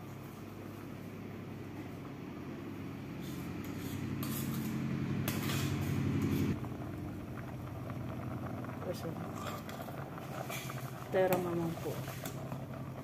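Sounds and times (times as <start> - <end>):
low engine-like hum: 0.0 - 13.0
ladle scraping metal pot: 3.2 - 6.6, 9.3 - 12.6.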